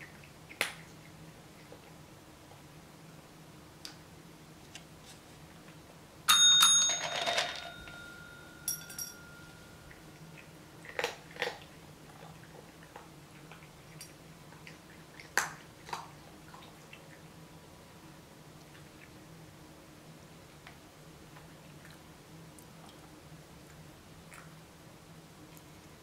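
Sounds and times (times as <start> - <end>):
desk bell ringing: 6.3 - 9.9
cat eating kibble from bowl: 9.4 - 17.2.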